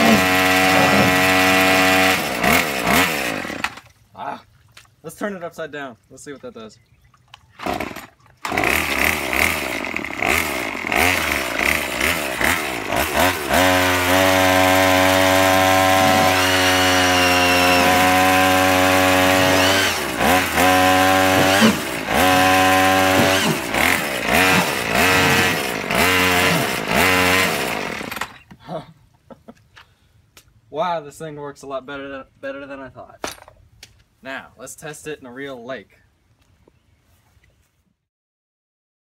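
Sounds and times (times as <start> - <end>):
string trimmer engine revving: 0.0 - 3.9, 7.6 - 28.4.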